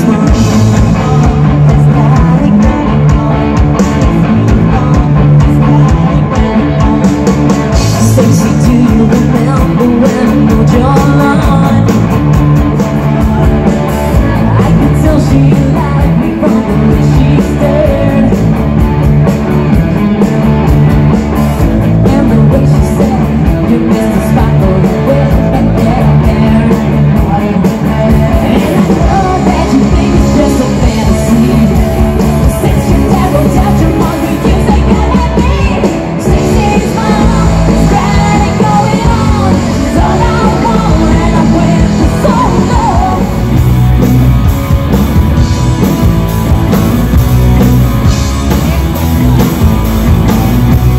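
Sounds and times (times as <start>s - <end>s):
person singing: 0.0s - 18.8s, 21.8s - 43.8s
live rock band playing: 0.0s - 50.9s.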